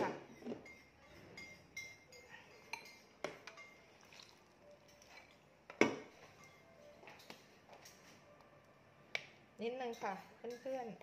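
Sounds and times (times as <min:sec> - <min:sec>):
kitchenware clinking and knocking: 0:00.0 - 0:03.9, 0:04.9 - 0:08.1.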